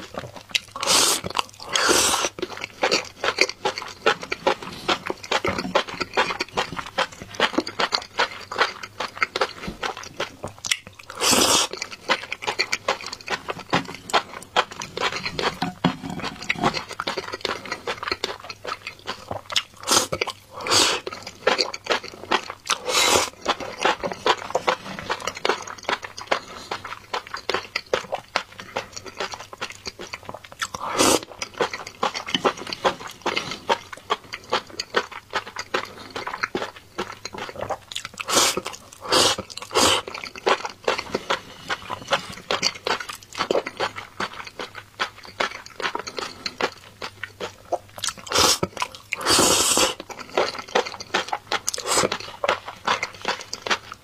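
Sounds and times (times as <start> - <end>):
wet chewing: 0.0 - 54.0
slurping noodles: 0.8 - 3.3, 11.1 - 11.9, 19.8 - 21.7, 22.3 - 25.4, 30.8 - 31.3, 38.2 - 42.5, 48.3 - 50.6, 51.7 - 53.3.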